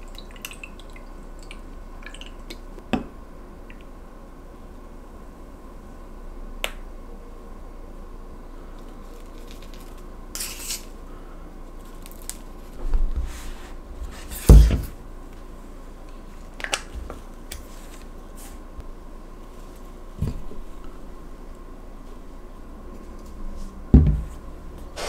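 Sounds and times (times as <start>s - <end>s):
rustling and scraping: 11.8s - 15.0s, 16.2s - 18.7s
dull thumps: 23.9s - 24.4s.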